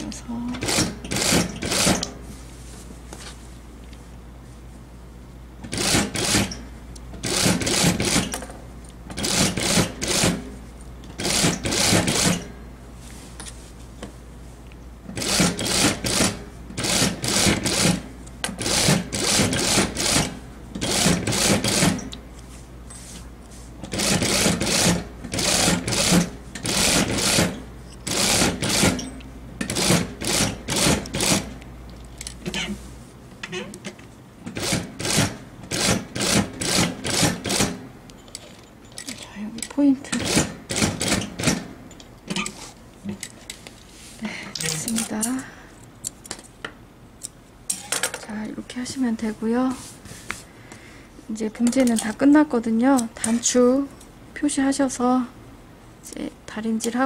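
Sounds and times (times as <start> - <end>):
sewing machine stitching: 0.6 - 2.1, 5.7 - 6.5, 7.2 - 8.3, 9.2 - 10.4, 11.2 - 12.4, 15.2 - 18.0, 18.6 - 22.0, 23.9 - 29.0, 29.7 - 31.5, 34.5 - 37.8.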